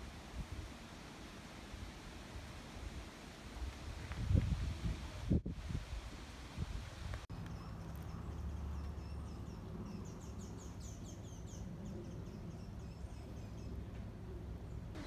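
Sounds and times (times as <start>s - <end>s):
low outdoor rumble: 7.3s - 15.0s
songbird chirping: 7.3s - 15.0s.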